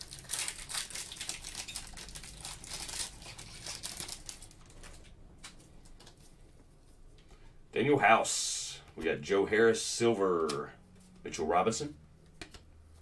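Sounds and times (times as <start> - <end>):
wrapper crinkling and crackling: 0.0 - 6.3.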